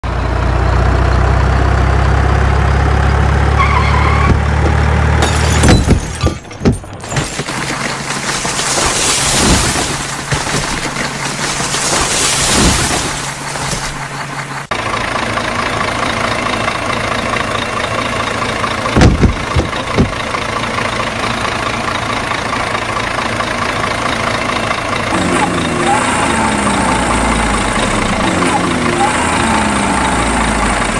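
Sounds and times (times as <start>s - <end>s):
truck engine idling and revving: 0.0s - 30.9s
sharp knocks: 19.0s - 20.2s.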